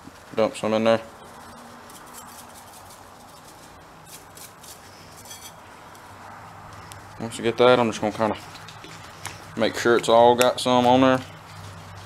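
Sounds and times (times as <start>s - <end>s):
seasoning rattling from shaker: 1.2s - 5.5s.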